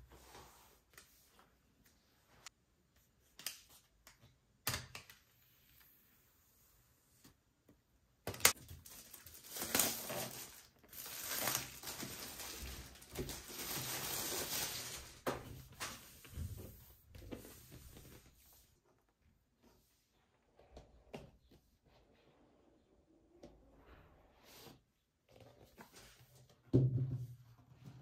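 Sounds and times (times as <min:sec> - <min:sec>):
plastic wrap tearing and crinkling: 0:08.4 - 0:15.2.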